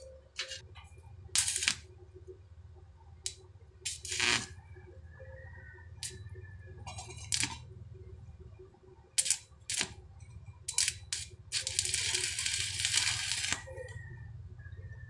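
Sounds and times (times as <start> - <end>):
welding arc crackling: 0.0 - 0.6, 1.3 - 1.9, 3.2 - 4.5, 6.9 - 7.6, 9.2 - 10.0, 10.7 - 14.0.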